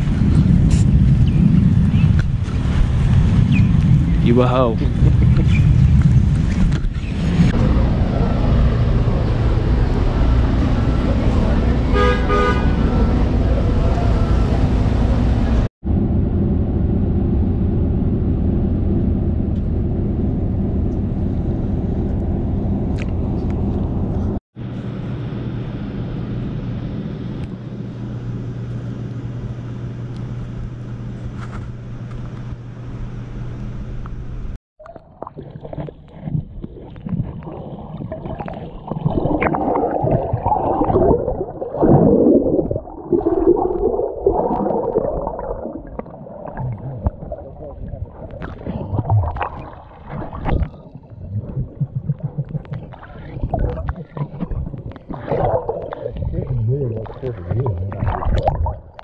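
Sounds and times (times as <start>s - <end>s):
steady low rumbling: 0.0s - 34.6s, 36.0s - 59.0s
underwater bubbling and churning: 34.8s - 59.0s.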